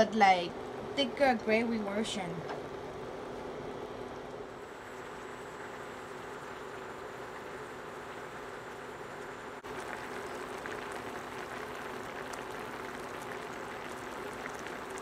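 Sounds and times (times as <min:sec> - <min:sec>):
steady hum: 0:00.0 - 0:15.0
liquid bubbling in a pan: 0:02.7 - 0:15.0.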